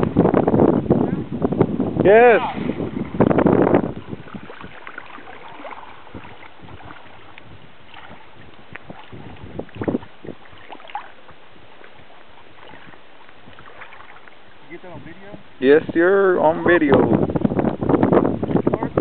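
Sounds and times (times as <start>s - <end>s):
wind on microphone: 0.0s - 19.0s
water sloshing: 2.2s - 15.7s.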